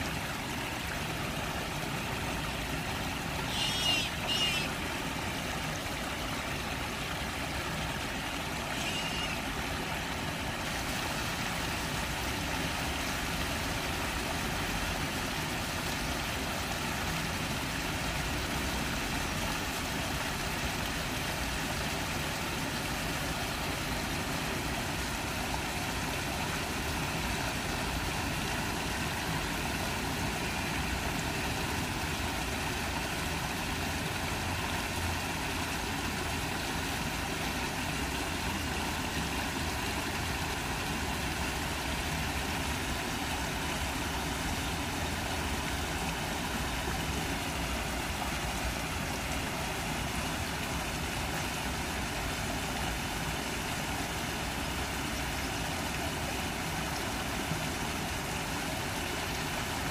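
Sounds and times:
ducklings peeping: 3.5s - 4.7s.

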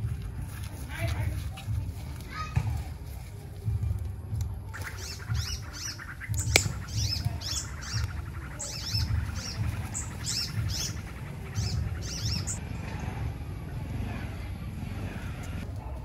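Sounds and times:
small birds chirping: 0.0s - 16.0s
low rumble: 2.8s - 16.0s
sharp click: 6.4s - 6.8s.

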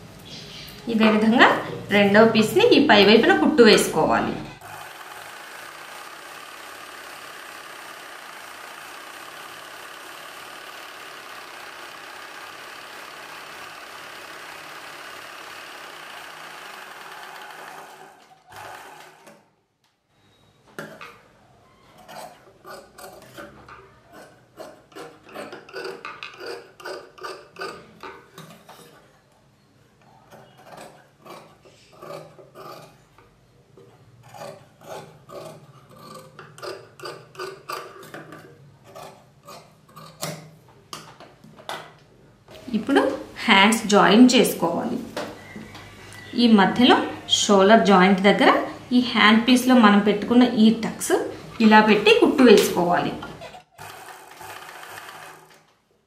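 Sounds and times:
sewing machine stitching: 4.6s - 19.5s, 21.7s - 28.8s, 51.2s - 55.8s.

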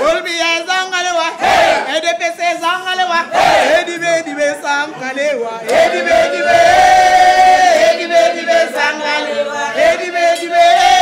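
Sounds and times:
group of voices chanting: 1.4s - 1.9s, 3.2s - 3.9s, 5.6s - 11.0s.

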